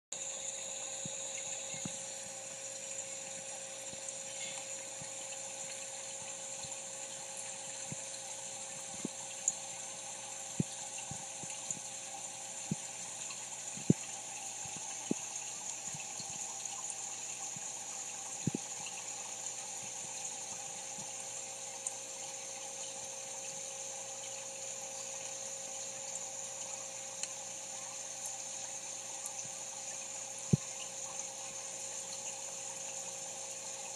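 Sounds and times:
aquarium pump humming: 0:00.1 - 0:33.9.

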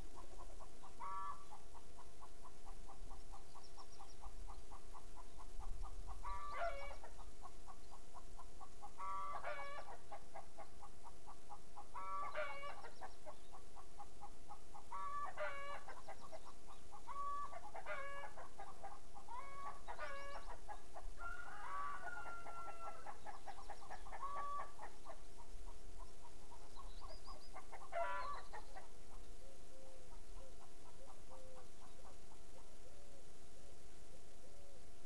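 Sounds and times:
bird calling: 0:00.2 - 0:01.6, 0:26.0 - 0:34.8.

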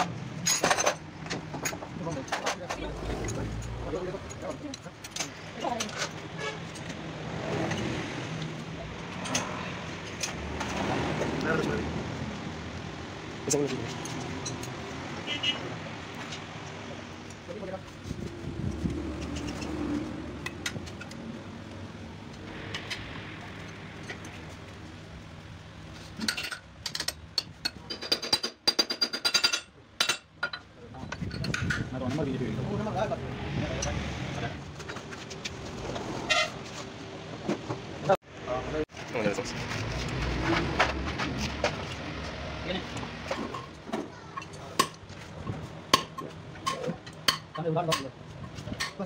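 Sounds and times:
hand tools clinking on metal: 0:26.2 - 0:31.8.

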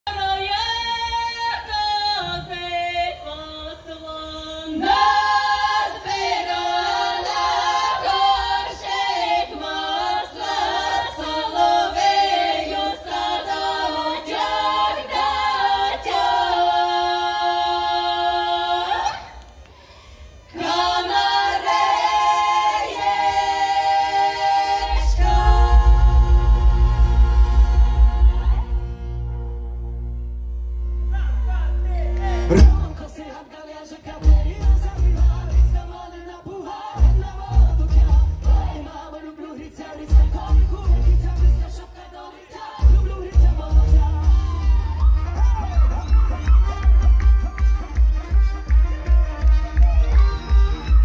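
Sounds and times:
women singing in harmony: 0:00.1 - 0:19.4, 0:20.5 - 0:29.0, 0:32.2 - 0:45.1
low pulsing bass: 0:24.8 - 0:33.1.

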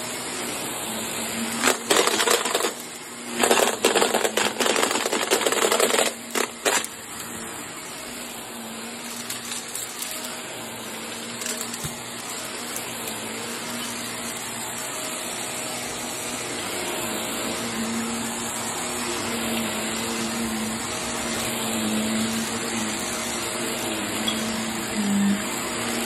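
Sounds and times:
vacuum cleaner motor hum: 0:00.0 - 0:26.0
debris rattling in vacuum: 0:01.5 - 0:07.3, 0:09.0 - 0:10.4, 0:11.0 - 0:13.2.

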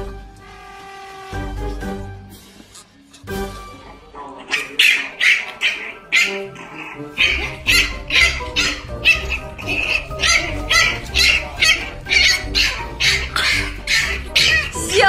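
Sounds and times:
puppy yapping: 0:04.2 - 0:15.0.

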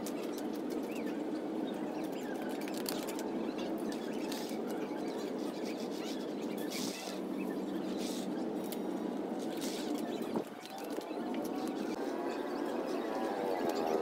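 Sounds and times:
steady background noise: 0:00.0 - 0:14.0.

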